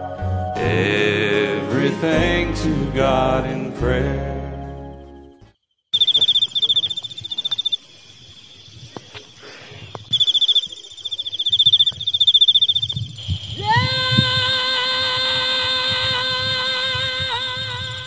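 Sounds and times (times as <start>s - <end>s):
cricket trilling: 5.1s - 18.0s.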